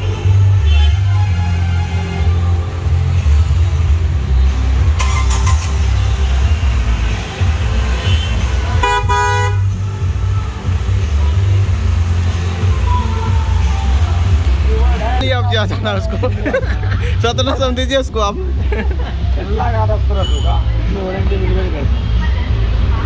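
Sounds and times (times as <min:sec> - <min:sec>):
car horn honk: 0:00.6 - 0:01.1, 0:08.0 - 0:09.8, 0:20.2 - 0:20.6.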